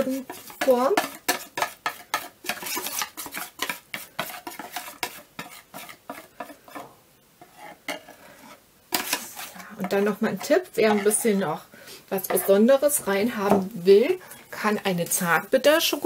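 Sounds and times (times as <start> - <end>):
batter scraped from plastic bowl: 0.0 - 6.3.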